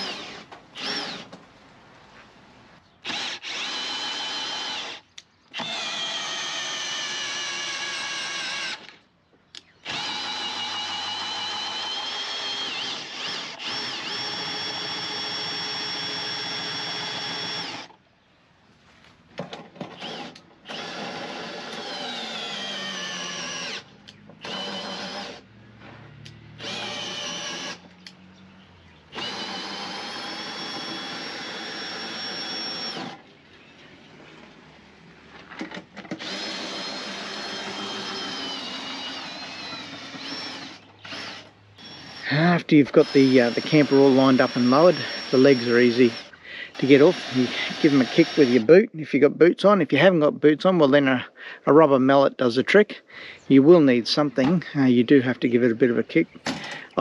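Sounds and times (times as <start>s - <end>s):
cordless drill motor whining: 0.0s - 1.4s, 3.0s - 9.0s, 9.6s - 18.0s, 19.8s - 25.5s, 26.2s - 28.2s, 29.1s - 33.2s, 36.0s - 48.7s.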